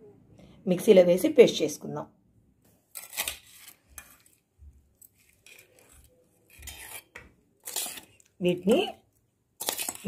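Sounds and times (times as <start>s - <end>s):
kitchen utensils clinking and scraping: 5.2s - 8.9s.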